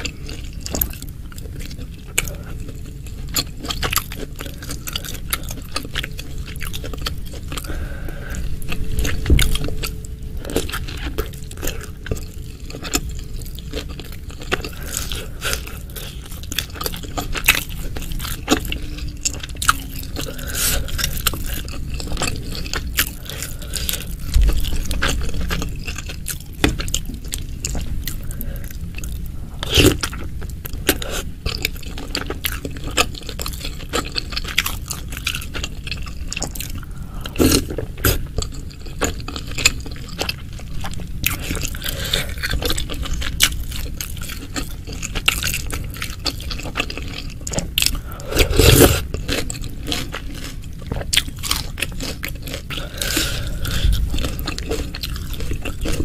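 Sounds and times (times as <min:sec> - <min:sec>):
moist chewing: 0:00.0 - 0:56.0.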